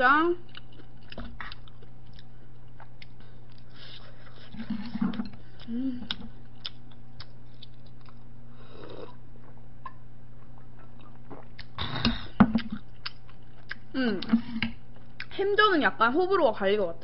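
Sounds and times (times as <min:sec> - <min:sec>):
steady low hum: 0:00.0 - 0:17.0
swallow: 0:10.6 - 0:12.8.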